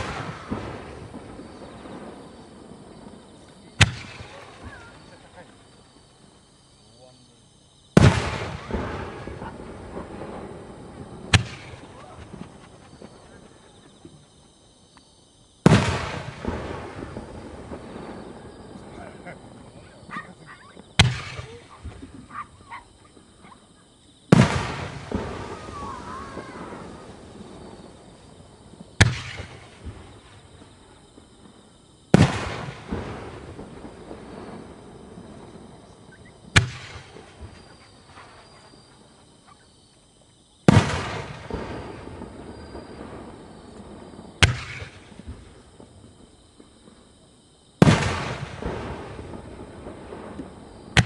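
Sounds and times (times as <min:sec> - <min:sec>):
firework booms: 0:00.0 - 0:06.5, 0:07.9 - 0:14.7, 0:15.6 - 0:23.6, 0:24.2 - 0:39.7, 0:40.6 - 0:51.0
sharp firework bang echoing: 0:03.8 - 0:05.2, 0:08.0 - 0:13.5, 0:15.7 - 0:18.2, 0:21.0 - 0:22.0, 0:24.3 - 0:28.0, 0:29.0 - 0:30.1, 0:36.5 - 0:38.6, 0:44.4 - 0:45.6, 0:47.8 - 0:50.4
firework shell burst rumbling: 0:08.0 - 0:14.2.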